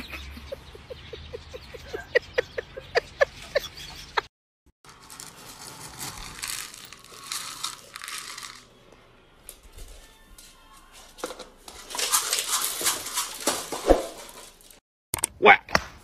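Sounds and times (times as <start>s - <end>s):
dry pet food rattling in scoop: 4.9s - 8.8s, 10.4s - 14.8s.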